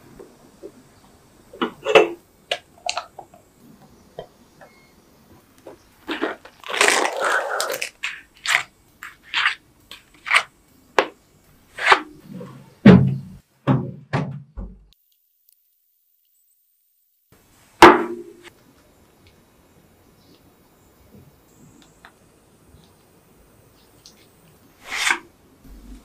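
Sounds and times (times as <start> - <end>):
packaging rustling: 6.0 - 10.5.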